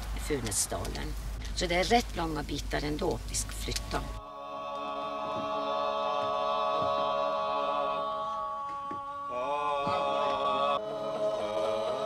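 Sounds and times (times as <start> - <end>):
voices singing a slow chant: 3.8 - 12.0.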